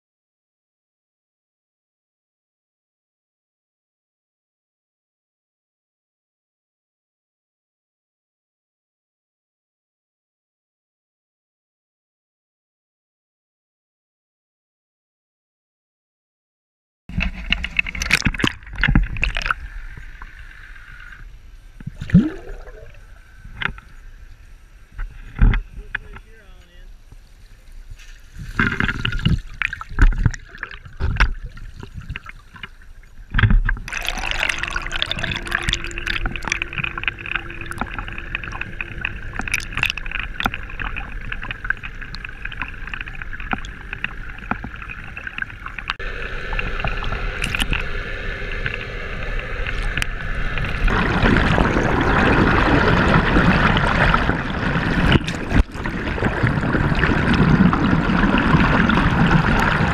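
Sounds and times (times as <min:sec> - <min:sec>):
underwater knocks and bumps: 0:17.1 - 0:19.6, 0:25.0 - 0:26.3, 0:28.0 - 0:46.0, 0:50.7 - 0:59.9
faint hum: 0:17.1 - 0:59.9
muffled water rushing: 0:17.1 - 0:59.9.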